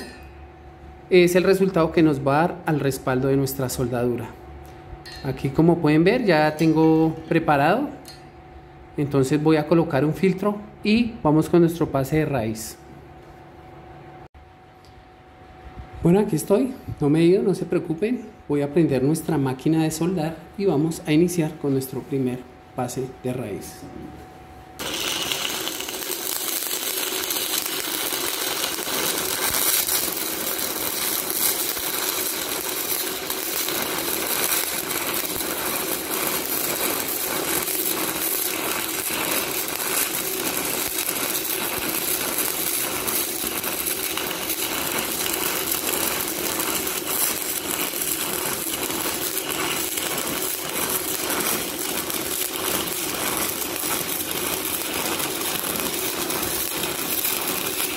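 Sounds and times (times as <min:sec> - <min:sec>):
welding arc crackling: 0:24.8 - 0:57.9.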